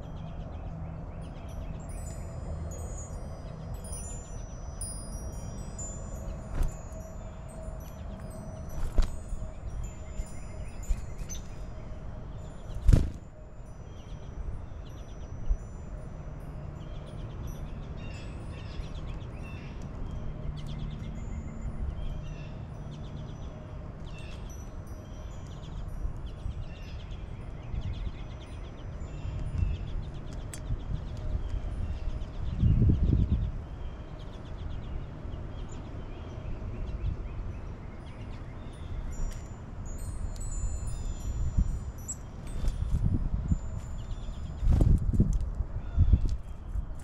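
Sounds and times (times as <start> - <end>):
songbirds chirping: 0.0 - 47.0.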